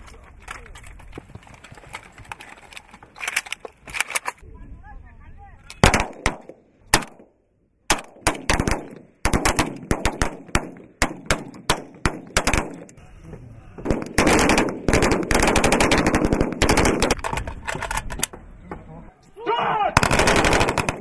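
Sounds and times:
small-arms gunfire: 0:05.8 - 0:07.2, 0:07.9 - 0:12.9, 0:13.8 - 0:17.2, 0:20.0 - 0:21.0.

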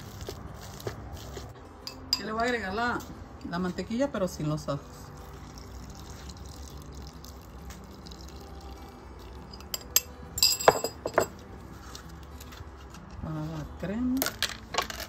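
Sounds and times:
butter pouring: 0:05.2 - 0:09.5.

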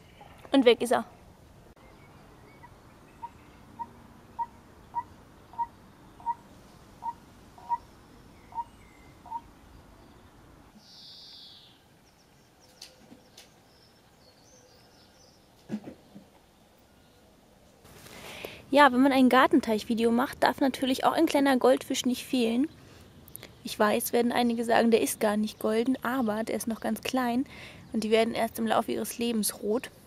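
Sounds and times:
animal piping calls: 0:02.4 - 0:09.5
short hiss: 0:17.9 - 0:18.6.

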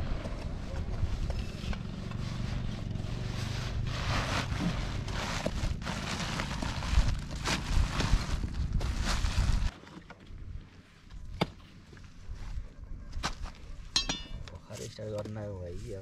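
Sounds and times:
wind buffeting microphone: 0:06.7 - 0:09.7.

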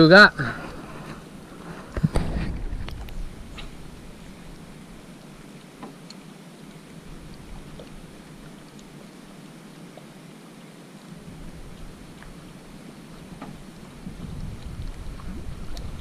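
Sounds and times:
faint ticks: 0:05.2 - 0:10.1.

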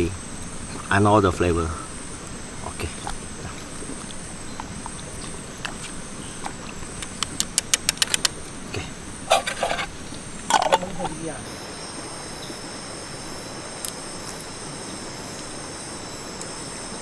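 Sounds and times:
crickets buzzing: 0:00.0 - 0:17.0
sharp clicks: 0:07.0 - 0:08.4.

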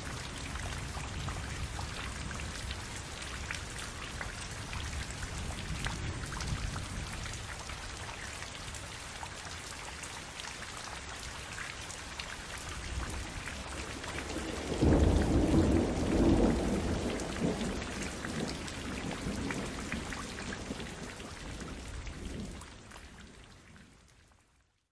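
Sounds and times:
rain drops striking surface: 0:00.0 - 0:24.9
thunder rumbling: 0:13.0 - 0:22.6.

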